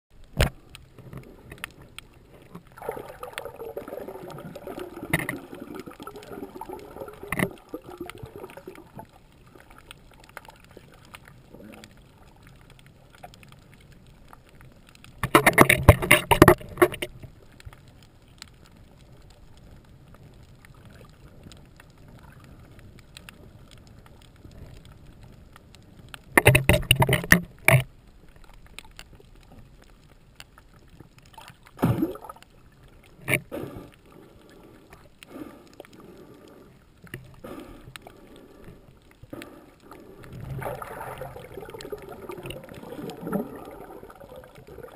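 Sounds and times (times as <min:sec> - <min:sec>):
underwater bubbles rumbling: 0:00.1 - 0:44.9
faint underwater hiss: 0:31.4 - 0:44.9.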